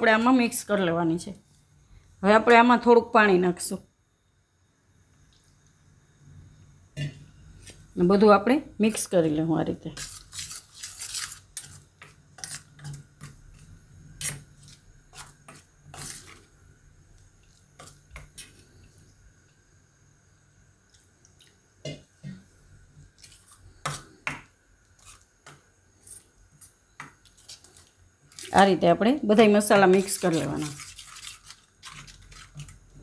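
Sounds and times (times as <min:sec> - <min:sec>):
metal spoon scraping steel bowl: 0:09.9 - 0:11.8, 0:12.4 - 0:13.0, 0:14.2 - 0:16.4, 0:29.8 - 0:32.8.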